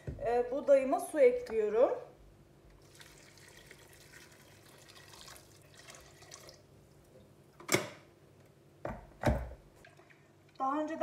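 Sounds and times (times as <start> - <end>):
water pouring into a metal pot: 2.8 - 6.7.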